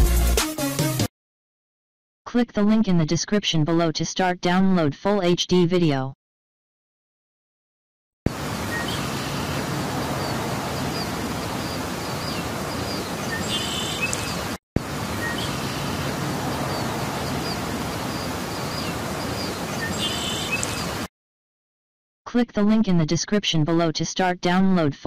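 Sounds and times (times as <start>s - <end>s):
small birds chirping: 8.4s - 21.1s
steady background hiss: 8.4s - 21.1s.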